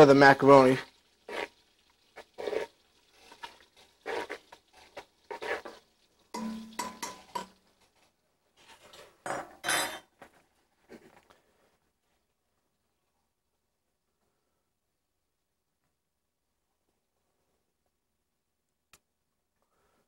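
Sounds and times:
pots and pans clattering: 0:05.3 - 0:07.7, 0:08.8 - 0:10.2.

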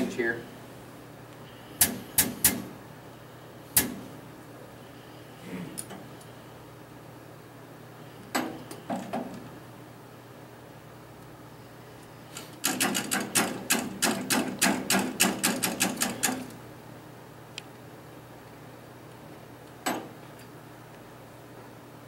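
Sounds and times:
sharp mechanical clicks: 0:12.6 - 0:16.6.

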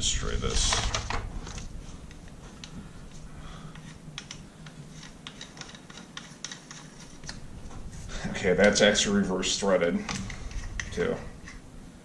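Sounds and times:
metal parts clicking: 0:03.8 - 0:07.4.

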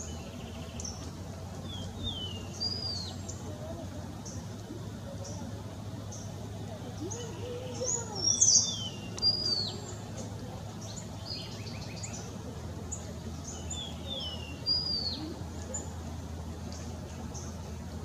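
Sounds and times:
steady low hum: 0:00.0 - 0:18.0
bird whistled calls: 0:07.1 - 0:10.0.

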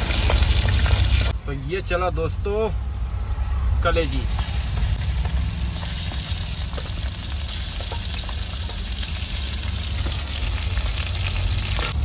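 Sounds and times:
liver sizzling in hot oil: 0:00.0 - 0:01.4, 0:04.0 - 0:12.0.

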